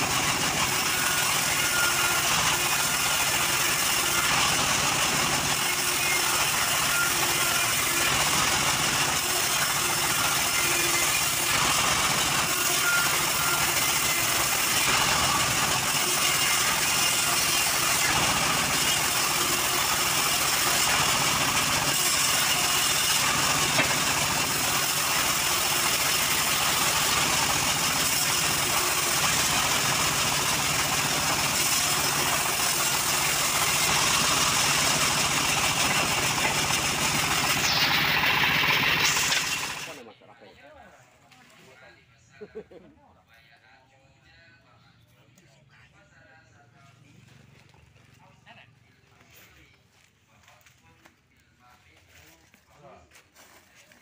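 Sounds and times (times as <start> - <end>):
band sawmill running: 0.0 - 40.0.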